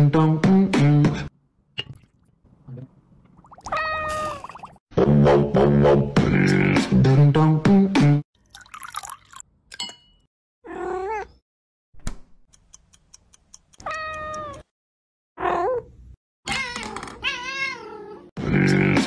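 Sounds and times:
cat meowing: 3.7 - 4.4, 10.6 - 11.4, 13.8 - 14.6, 16.5 - 18.2.

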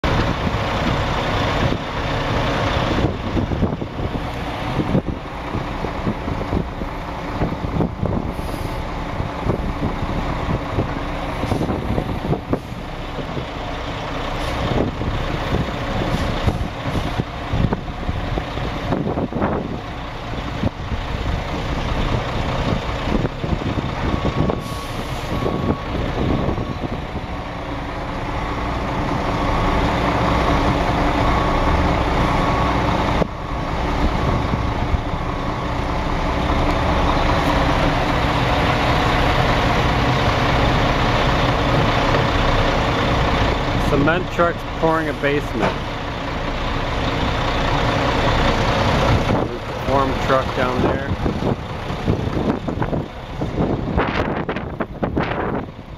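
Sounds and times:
diesel truck engines running: 0.0 - 55.9
backup alarm beeping: 24.0 - 27.0.

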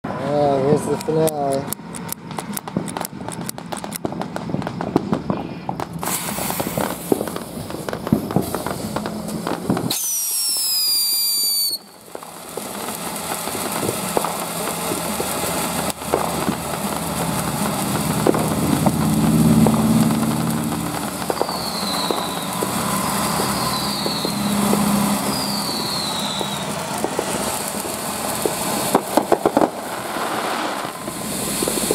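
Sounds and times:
firework fountain hissing: 0.2 - 31.9
firework crackles and pops: 0.6 - 31.9
fuse crackling: 0.6 - 31.9
high falling whistle: 9.9 - 12.0, 21.3 - 26.7
low hum: 14.4 - 30.1.

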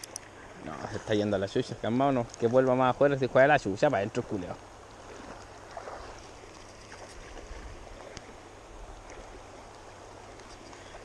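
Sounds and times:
faint ticks: 0.0 - 0.4, 2.1 - 2.7, 3.8 - 11.0
river noise: 0.0 - 11.0.

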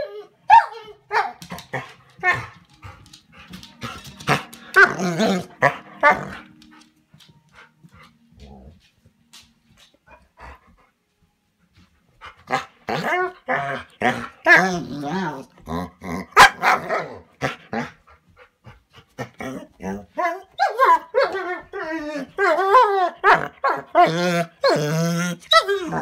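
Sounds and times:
dog barking and grumbling: 3.8 - 6.6, 12.5 - 18.0, 19.2 - 26.0
dog yowling: 20.2 - 26.0.

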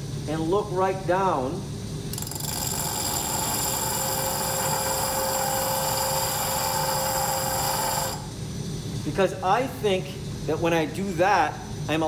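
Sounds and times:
high ringing whine: 2.0 - 9.4
glass grinding on wheel: 2.1 - 8.3.

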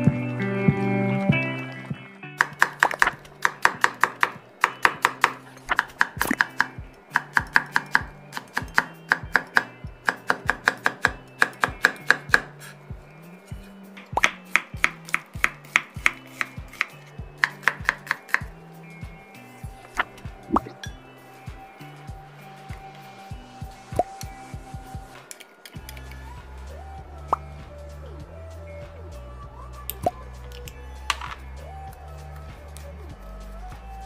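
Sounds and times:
knife chopping on wooden board: 2.4 - 12.5, 14.2 - 18.5.

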